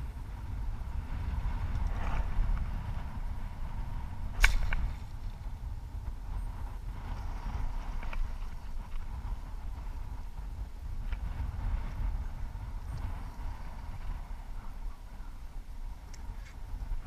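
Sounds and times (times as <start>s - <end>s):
wind rumble on microphone: 0.0s - 17.0s
bowstring snap: 4.4s - 5.3s.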